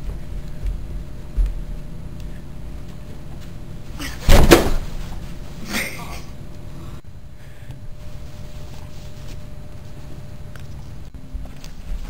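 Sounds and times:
loud crash and scuffle: 4.1s - 5.2s.

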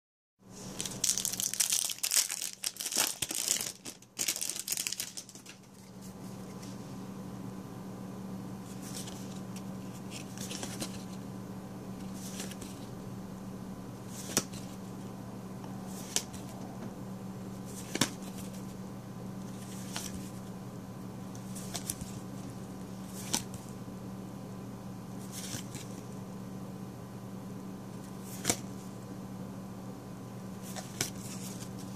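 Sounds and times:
cards sliding against cards: 8.7s - 11.2s, 14.1s - 14.7s, 15.9s - 16.5s, 17.7s - 18.6s, 21.4s - 22.2s, 28.2s - 28.7s, 30.6s - 31.9s.

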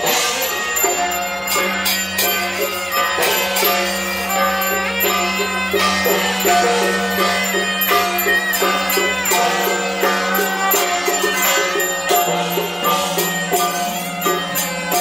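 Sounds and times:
ceremonial music melody: 0.0s - 15.0s
light percussion strikes: 0.0s - 15.0s.

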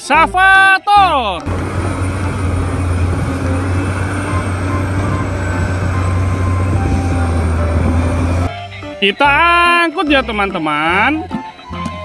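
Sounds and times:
excavator diesel engine drone: 1.4s - 8.5s.

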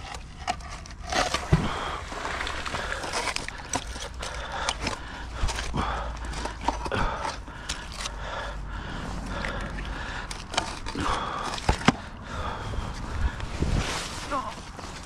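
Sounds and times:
rustling: 13.0s - 15.0s.

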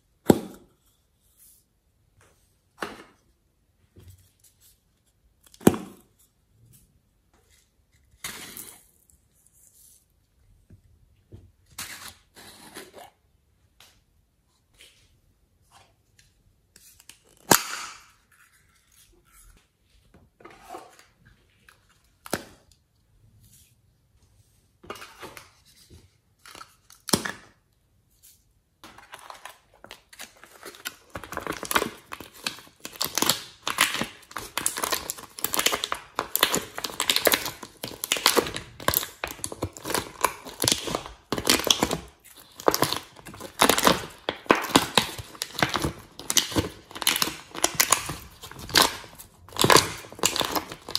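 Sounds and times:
plastic tray crinkling: 28.8s - 50.9s.

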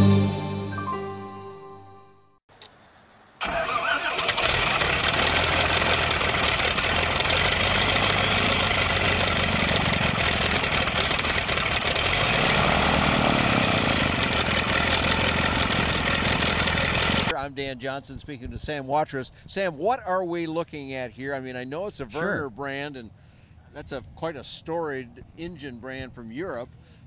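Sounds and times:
aircraft engine running: 3.4s - 17.3s
propeller noise: 3.4s - 17.3s.

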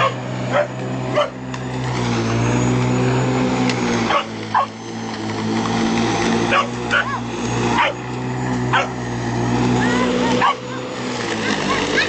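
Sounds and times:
puppy barking: 0.0s - 1.4s, 4.1s - 4.8s, 6.5s - 7.2s, 7.8s - 8.0s, 8.7s - 9.0s, 10.4s - 10.6s
lawn mower hum: 0.0s - 12.0s.

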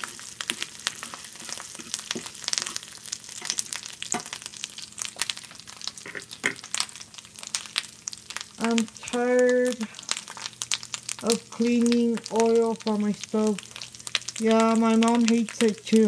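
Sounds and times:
meat sizzling in oil: 0.0s - 16.0s
fork scraping and tapping pan: 6.0s - 6.6s.

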